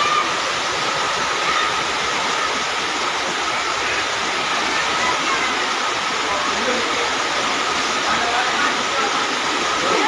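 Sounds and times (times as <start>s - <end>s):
floodwater rushing: 0.0s - 10.0s.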